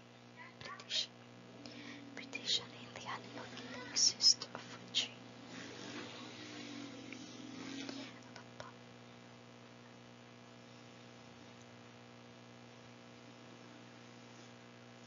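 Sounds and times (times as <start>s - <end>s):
faint electrical hum: 0.0s - 15.0s
soft breathy noise: 1.6s - 2.3s.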